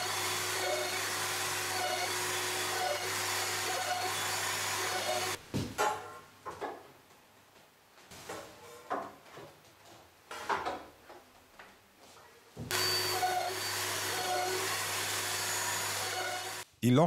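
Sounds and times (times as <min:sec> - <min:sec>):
dust extractor running: 0:00.0 - 0:05.4, 0:12.7 - 0:16.6
router running: 0:00.0 - 0:05.4, 0:12.7 - 0:16.6.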